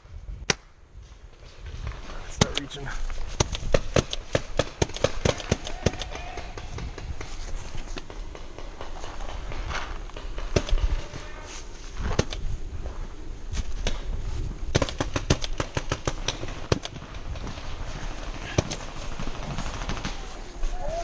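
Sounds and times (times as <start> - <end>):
paintball markers firing: 2.3 - 11.2, 12.1 - 12.5, 14.7 - 17.6, 18.4 - 20.5.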